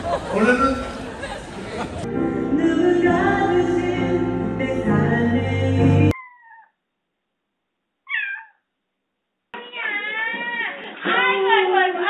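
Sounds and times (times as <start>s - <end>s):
music playing: 2.0s - 6.2s
cat meowing faintly: 8.1s - 8.6s, 9.6s - 10.8s.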